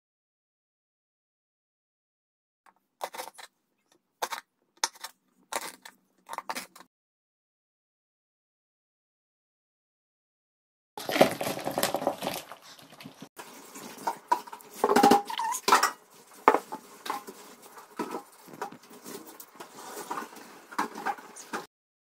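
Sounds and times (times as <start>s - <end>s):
food tumbling into bowl: 11.0s - 21.6s
plates scraping against bowl: 11.0s - 21.7s.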